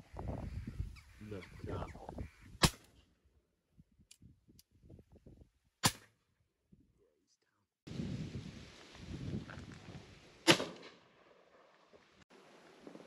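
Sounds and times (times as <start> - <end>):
shotgun shots: 10.4 - 11.0.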